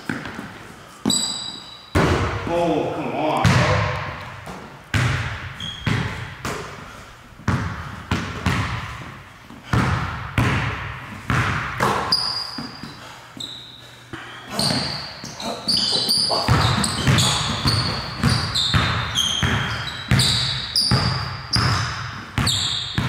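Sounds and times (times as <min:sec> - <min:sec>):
sneaker squeaks on hardwood: 0:00.0 - 0:02.0, 0:05.5 - 0:06.3, 0:11.8 - 0:23.0
basketball bouncing on hardwood: 0:03.4 - 0:06.7, 0:07.5 - 0:12.8, 0:16.5 - 0:23.0.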